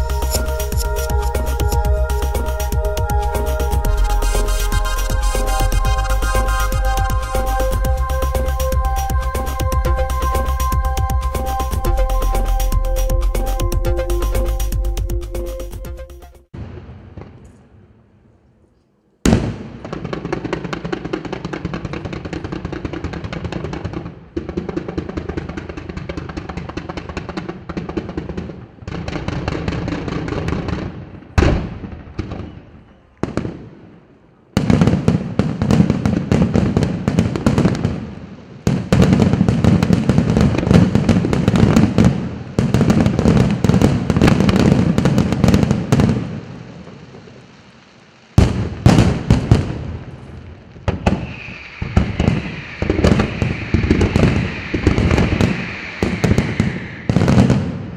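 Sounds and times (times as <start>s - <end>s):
sharp firework reports: 0.0s - 9.0s, 50.9s - 57.9s
fireworks bursts and crackle: 0.0s - 13.8s, 16.5s - 17.8s, 19.3s - 57.9s.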